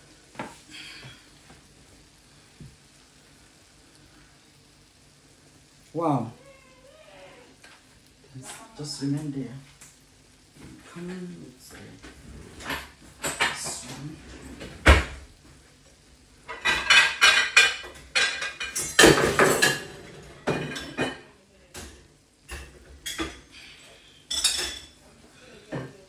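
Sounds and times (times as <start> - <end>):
dishes and utensils clattering: 12.4 - 15.2, 16.4 - 26.0.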